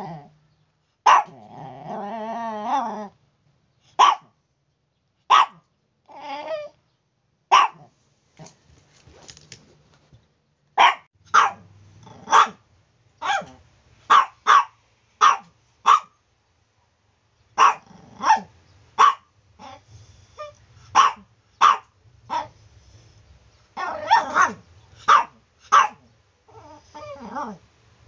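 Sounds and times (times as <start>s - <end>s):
small dog barking: 1.0s - 1.5s, 3.9s - 4.4s, 5.3s - 5.7s, 7.5s - 8.6s, 10.8s - 12.6s, 13.2s - 16.2s, 17.6s - 19.8s, 20.4s - 22.6s, 23.8s - 26.6s
dog whining: 6.0s - 6.8s, 23.8s - 24.6s, 26.5s - 27.6s.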